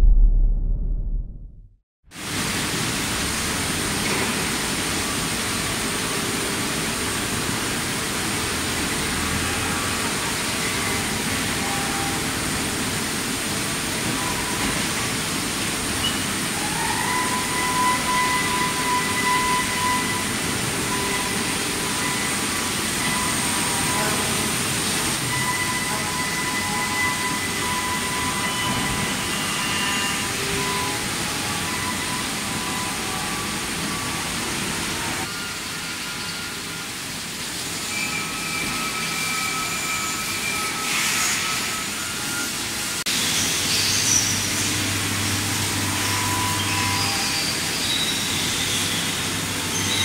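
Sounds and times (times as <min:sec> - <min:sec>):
high whine: 0:00.0 - 0:01.8
machining center hiss and hum: 0:02.2 - 0:50.0.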